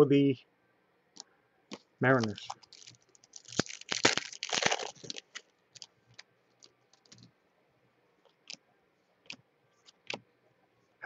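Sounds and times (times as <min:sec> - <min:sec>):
cards rustling: 0:01.7 - 0:07.3.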